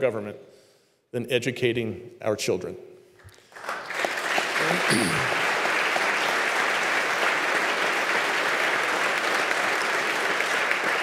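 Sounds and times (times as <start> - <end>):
large audience applauding: 3.3 - 11.0.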